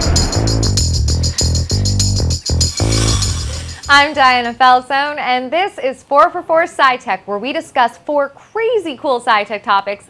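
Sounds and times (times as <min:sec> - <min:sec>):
news theme music with bass: 0:00.0 - 0:04.7.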